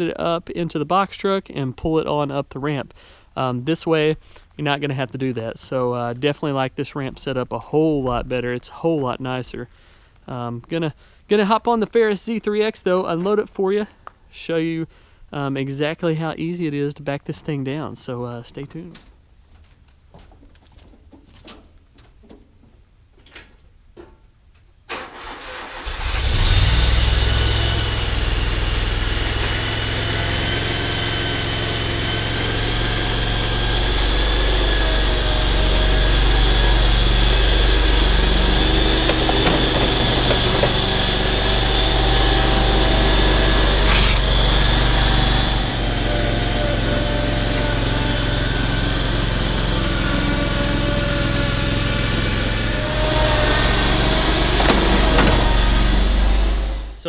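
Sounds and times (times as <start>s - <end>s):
mower engine running: 27.5s - 57.0s.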